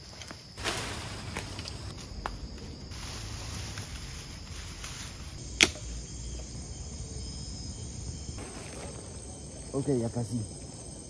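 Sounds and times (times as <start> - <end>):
forest insects chirring: 0.0 - 11.0
sharp snap: 5.6 - 5.8.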